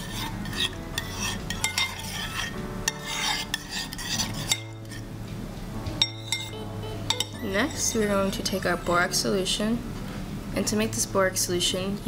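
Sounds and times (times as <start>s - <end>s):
spoon clinking against bowl: 0.0s - 5.0s, 6.0s - 8.0s
metal spoon stirring in bowl: 0.0s - 5.1s, 6.0s - 9.2s.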